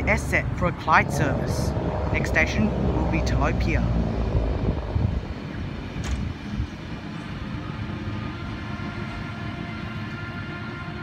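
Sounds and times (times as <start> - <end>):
electric train running past: 0.0 - 11.0.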